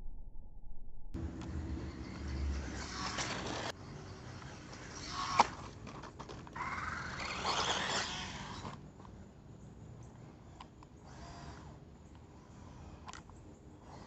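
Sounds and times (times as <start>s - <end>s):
electric motor whine: 1.2s - 8.8s, 10.4s - 13.2s
tyres on dirt: 1.2s - 9.2s.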